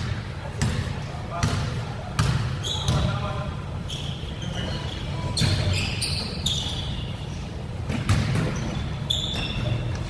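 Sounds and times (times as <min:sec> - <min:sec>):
sneaker squeaks: 0:00.6 - 0:10.0.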